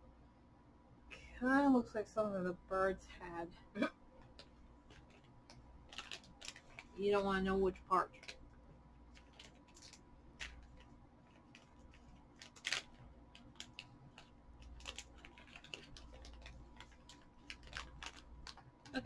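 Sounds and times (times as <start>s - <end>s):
snack bag crinkling: 4.2s - 7.0s, 8.1s - 19.0s.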